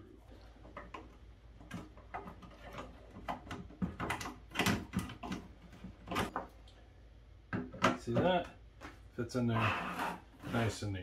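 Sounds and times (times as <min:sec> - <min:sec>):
clicks and knocks on plastic: 0:00.6 - 0:06.6, 0:07.5 - 0:09.0.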